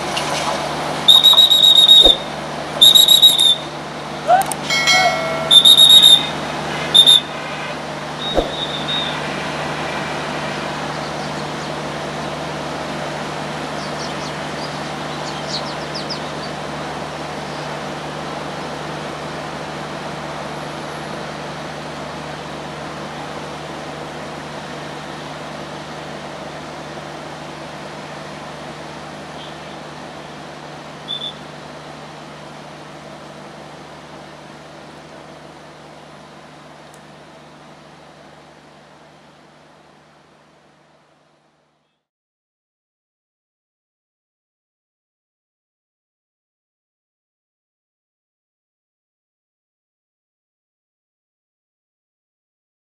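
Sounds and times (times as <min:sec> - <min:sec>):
diesel train engine and wheels: 0:00.0 - 0:42.1
train horn toot: 0:04.9 - 0:07.9, 0:08.7 - 0:10.8.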